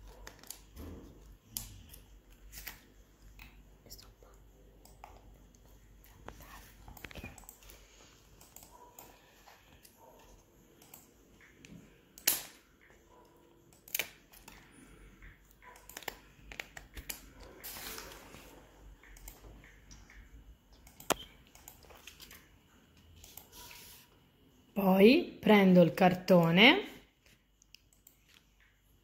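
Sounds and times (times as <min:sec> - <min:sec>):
rustling of straws and paper: 0:17.6 - 0:18.6.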